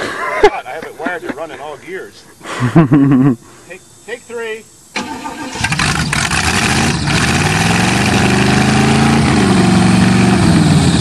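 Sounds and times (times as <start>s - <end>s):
car engine cranking: 5.0s - 10.8s.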